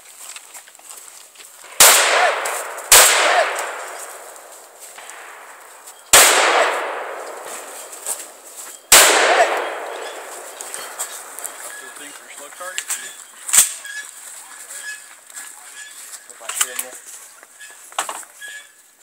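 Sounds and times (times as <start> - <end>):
shotgun shots with echo: 1.7 - 11.9.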